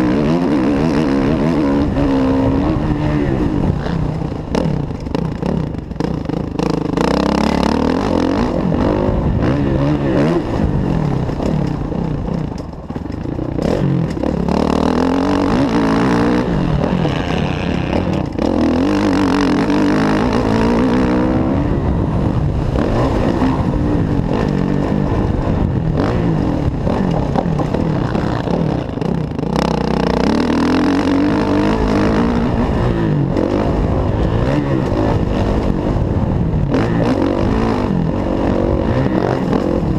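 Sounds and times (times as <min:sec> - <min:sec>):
motocross bike engine revving: 0:00.0 - 0:39.9.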